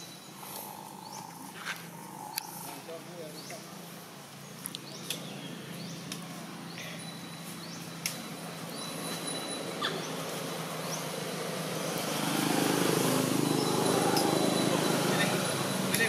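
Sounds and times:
thin high whine: 0.0 - 4.2, 6.8 - 16.0
steady hiss and low hum: 0.0 - 9.0.

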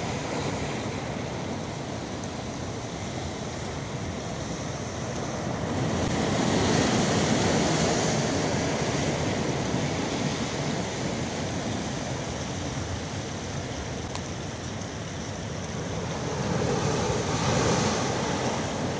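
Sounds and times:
sea surf on rocky shore: 0.0 - 18.9.

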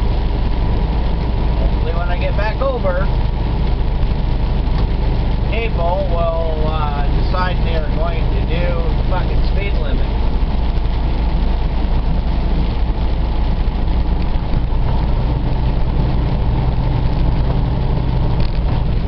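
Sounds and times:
diesel engine drone: 0.0 - 19.0
road noise: 0.0 - 19.0.

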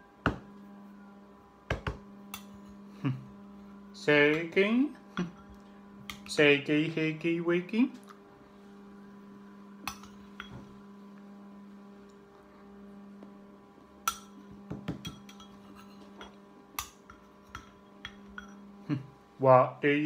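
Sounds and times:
steady low hum: 0.0 - 20.0
metal spoon scraping bowl: 15.1 - 18.8.

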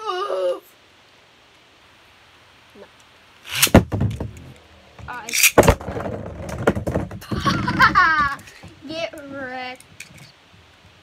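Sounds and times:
spinning top launches: 3.4 - 4.5, 5.2 - 6.1
spinning tops clicking and knocking: 3.5 - 4.5, 5.1 - 5.8.

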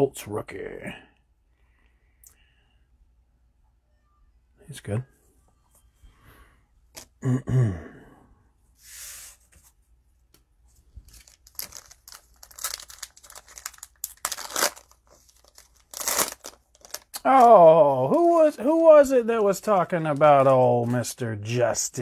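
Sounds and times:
cellophane wrapper tearing and crinkling: 11.1 - 17.6.

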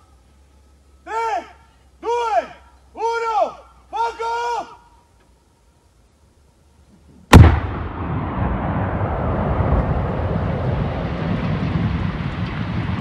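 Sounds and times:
bomb blast: 7.3 - 13.0.

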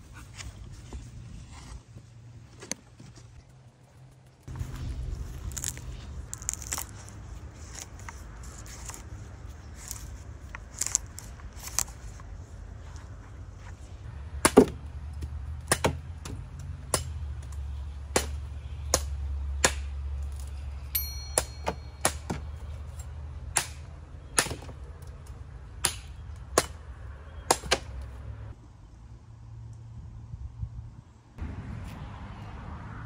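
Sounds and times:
machete chopping coconut husk: 5.4 - 7.1, 14.3 - 20.2, 21.4 - 22.5, 23.5 - 24.8, 25.8 - 28.0.

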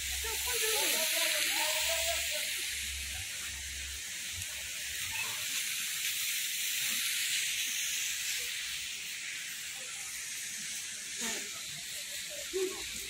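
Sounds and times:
high-pitched hiss: 0.0 - 13.0.

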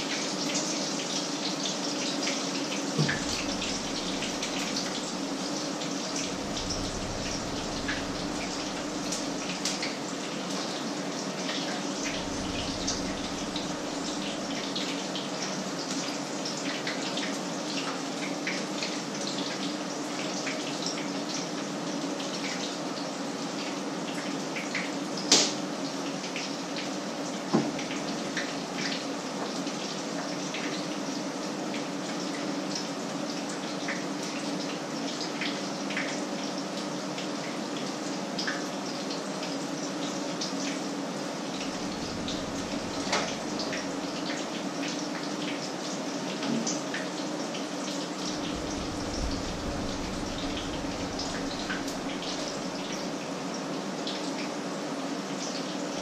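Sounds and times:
low steady hum: 3.0 - 5.4, 6.0 - 9.9, 11.8 - 14.9, 41.6 - 44.2, 48.2 - 53.3.

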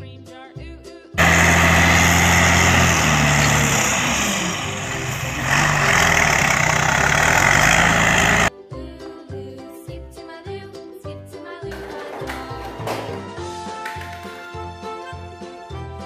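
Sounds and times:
diesel engine under load: 1.2 - 8.5
hydraulic hoist raising: 1.2 - 8.5
soil sliding out: 1.2 - 8.5.

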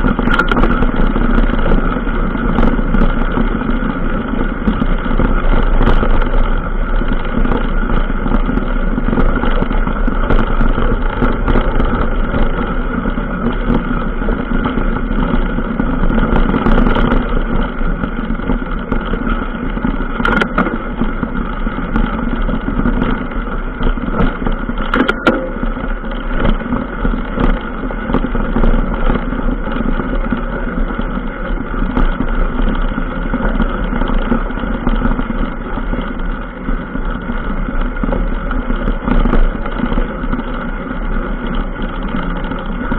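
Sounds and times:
vehicle rumble and rattle: 0.0 - 42.9.

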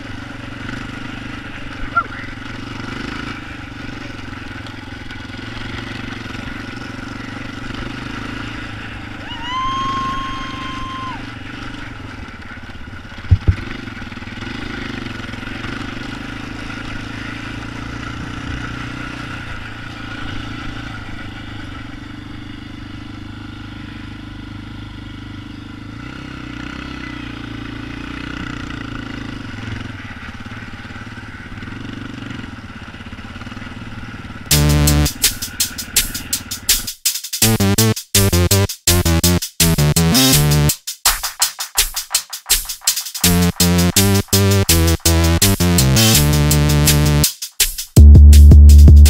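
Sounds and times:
atv engine running steadily: 0.0 - 36.8, 43.3 - 47.2
sharp knock: 13.3 - 13.7, 40.4 - 45.1.

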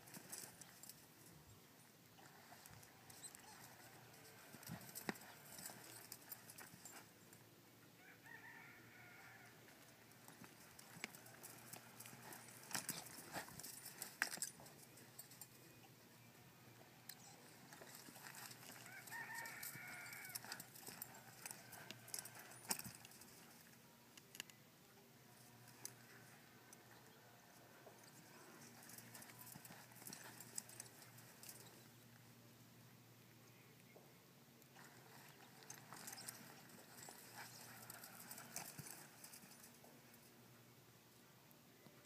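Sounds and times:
faint animal call: 8.0 - 9.8, 18.6 - 22.1.

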